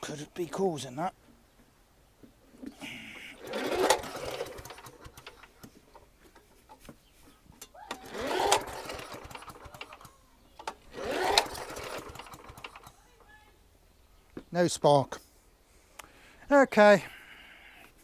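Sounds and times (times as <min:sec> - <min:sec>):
recoil starter pull whirring: 0:03.3 - 0:06.0, 0:07.6 - 0:13.3.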